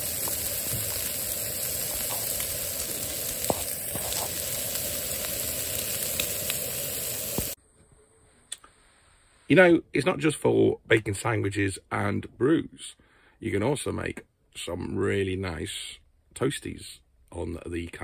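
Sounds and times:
bacon and sausages sizzling: 0:00.0 - 0:07.6
fat spitting and crackling: 0:00.0 - 0:07.6.

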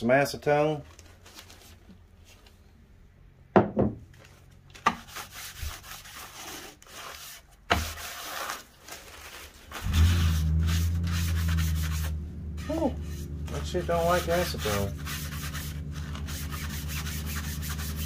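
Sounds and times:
paper towel rubbing plastic: 0:04.8 - 0:18.0
loud steady low hum: 0:09.8 - 0:18.0.

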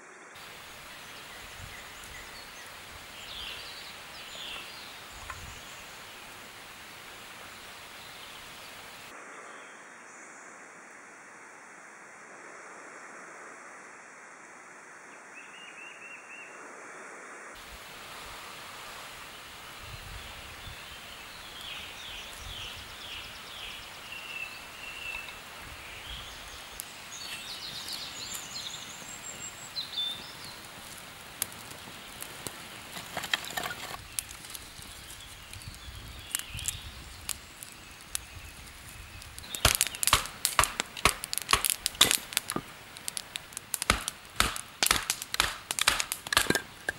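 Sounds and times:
birds singing: 0:00.8 - 0:06.3, 0:19.2 - 0:30.8, 0:33.9 - 0:42.4
knife batoned through firewood: 0:39.5 - 0:46.9.

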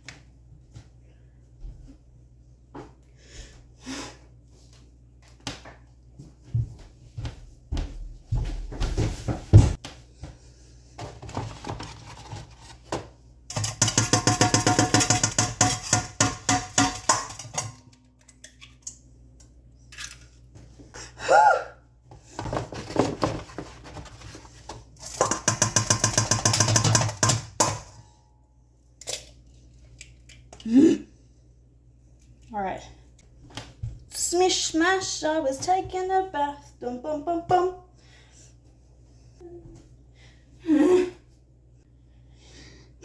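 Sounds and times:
knocking on metal bowl: 0:13.5 - 0:17.7, 0:25.2 - 0:27.9.

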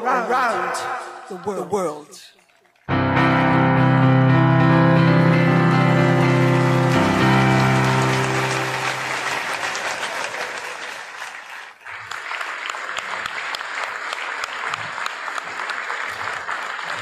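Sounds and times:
held music chord: 0:02.9 - 0:09.4
audience applauding: 0:05.0 - 0:17.0.

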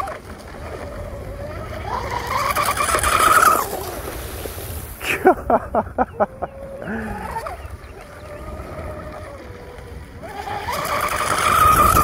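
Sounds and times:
man laughing: 0:05.0 - 0:08.0
distant electric motor whine: 0:05.9 - 0:12.0.

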